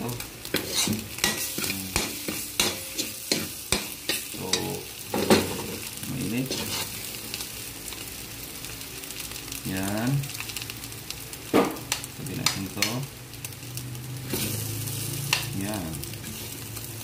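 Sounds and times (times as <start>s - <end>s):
food sizzling: 0.0s - 17.0s
metal spatula scraping a wok: 0.5s - 4.7s, 6.4s - 7.0s, 14.2s - 15.1s.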